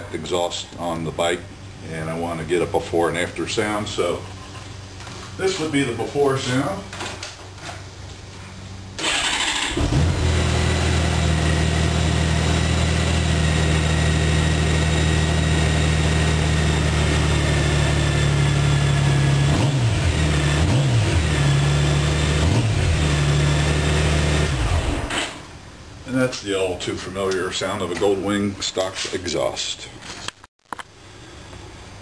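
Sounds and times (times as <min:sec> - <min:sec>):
motorcycle starter whirring: 0:09.0 - 0:15.0
motorcycle engine revving: 0:09.0 - 0:25.4.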